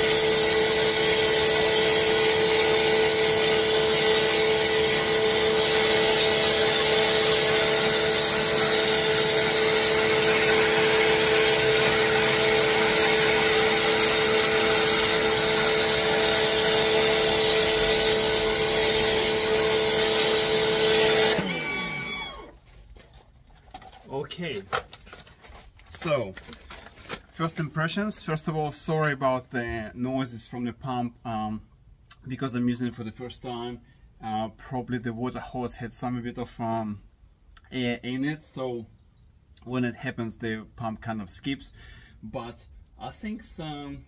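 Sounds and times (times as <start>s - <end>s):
high-pressure water jet hissing: 0.0s - 22.2s
pressure washer motor humming: 0.0s - 22.5s.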